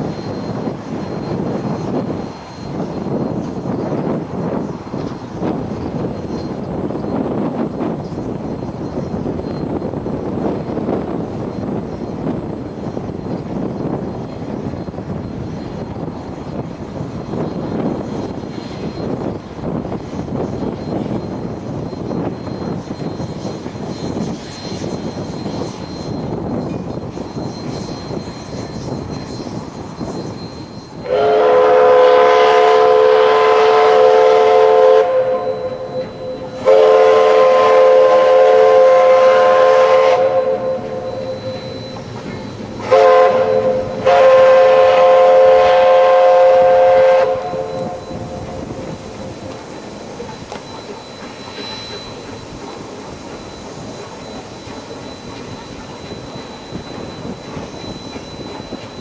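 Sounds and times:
train running rumble: 0.0 - 59.0
train chime horn blasts: 21.9 - 59.0.

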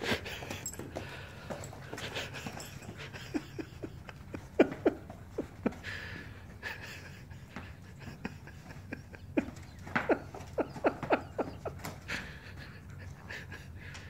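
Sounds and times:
dog panting: 0.0 - 9.0
booted dog feet on tile: 0.0 - 12.4.

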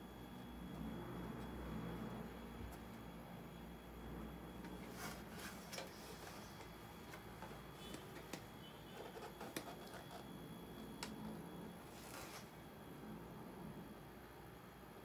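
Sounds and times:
low steady hum: 0.0 - 15.0
clicks and taps on plastic casing: 7.9 - 8.5.

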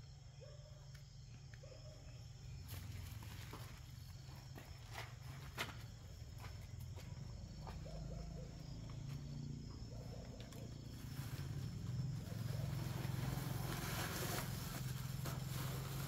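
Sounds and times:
footsteps and scuffs: 2.6 - 10.9
dry fronds rustling: 10.2 - 16.0.

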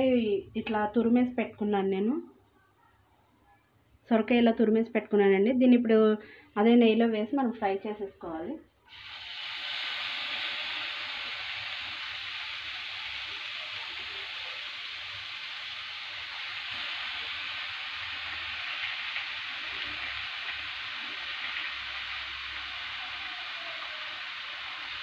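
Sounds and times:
food sizzling in a pan: 8.9 - 25.0.

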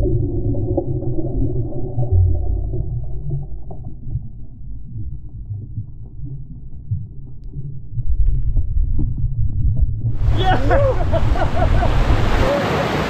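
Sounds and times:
underwater rumbling: 0.0 - 12.6.

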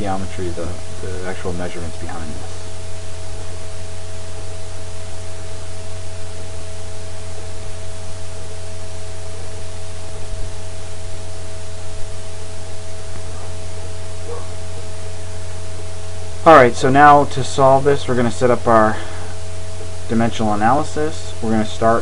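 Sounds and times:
faint steady tones: 0.0 - 22.0
low electrical hum: 0.0 - 22.0
steady hiss: 0.0 - 22.0.

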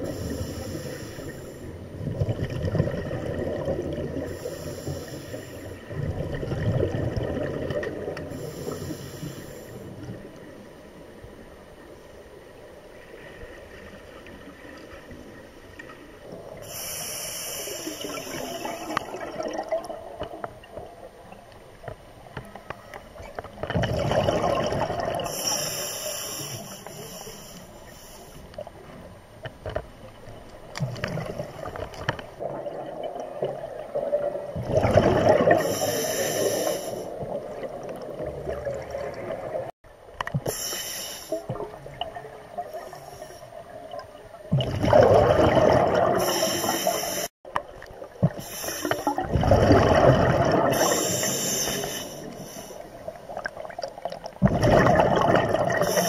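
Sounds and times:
regulator inhalation hiss: 0.0 - 1.8, 4.4 - 5.9, 8.4 - 9.9, 16.6 - 18.8, 25.3 - 28.5, 35.6 - 37.2, 40.5 - 41.4, 46.2 - 47.3, 48.4 - 49.2, 50.7 - 52.9
exhaled bubbles gurgling: 1.8 - 8.9, 16.2 - 21.5, 23.5 - 25.8, 30.8 - 40.6, 41.3 - 56.0.

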